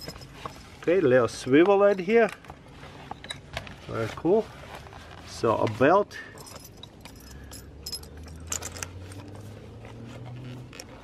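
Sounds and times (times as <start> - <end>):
buckle clicks and jingles: 0.0 - 3.5, 6.3 - 11.0.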